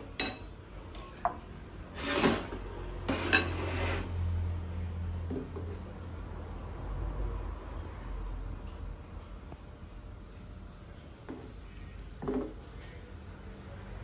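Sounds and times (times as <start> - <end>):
fork scraping: 2.0 - 4.1.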